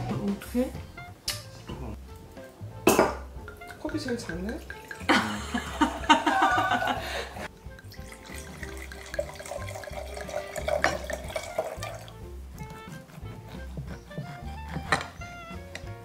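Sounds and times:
wine pouring into glass: 3.5s - 12.2s.

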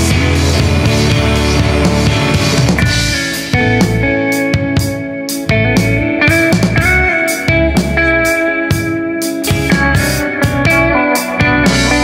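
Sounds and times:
bass guitar: 0.0s - 12.0s
electric guitar chords: 0.0s - 12.0s
steady drum beat: 0.0s - 12.0s.

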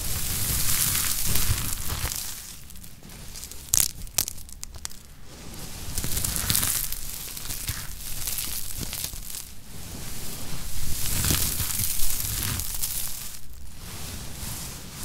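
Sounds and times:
soap flakes crackling in hand: 0.0s - 5.2s, 5.8s - 9.6s, 10.8s - 13.6s.

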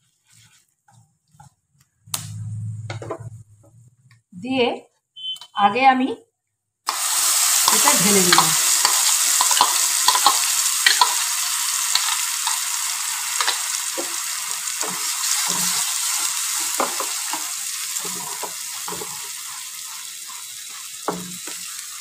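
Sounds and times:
paste sizzling in hot oil: 6.9s - 22.0s
spatula scraping a pan: 7.6s - 21.9s.

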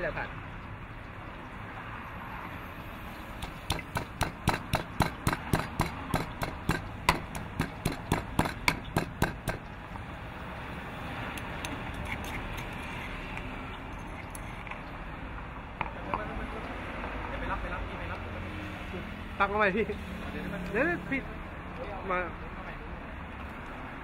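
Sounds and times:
stone pestle pounding in mortar: 3.4s - 9.7s.

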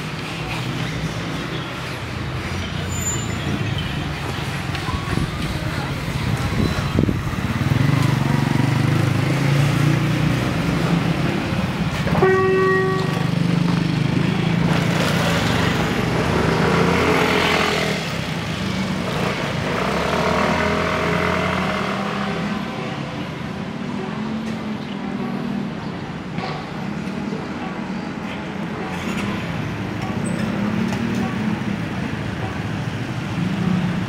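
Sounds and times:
motorcycles passing: 0.0s - 26.0s, 28.0s - 34.0s
horn beep: 12.2s - 13.3s.

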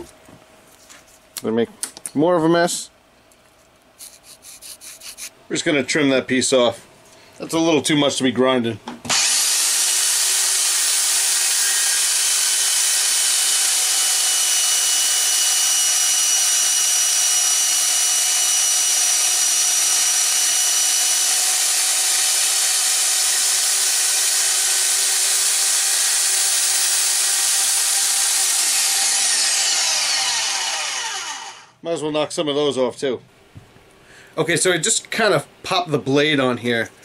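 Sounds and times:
belt grinder grinding: 9.1s - 31.7s.

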